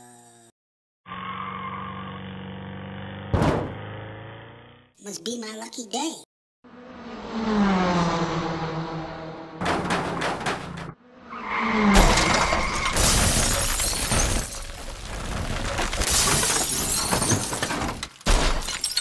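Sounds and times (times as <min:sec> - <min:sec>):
car slamming into building: 0:03.3 - 0:03.8
glass shattering and debris breaking: 0:12.0 - 0:19.0.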